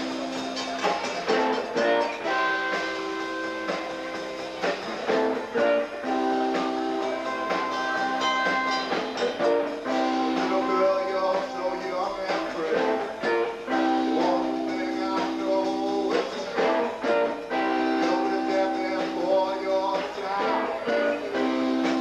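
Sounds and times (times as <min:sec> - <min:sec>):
drum hits: 0:00.0 - 0:13.6
electric guitar chords: 0:00.0 - 0:22.0.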